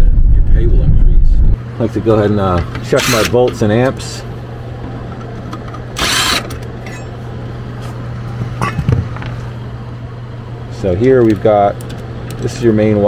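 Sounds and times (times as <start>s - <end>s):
furnace blower humming: 1.6s - 13.0s
cordless driver running: 5.8s - 6.7s.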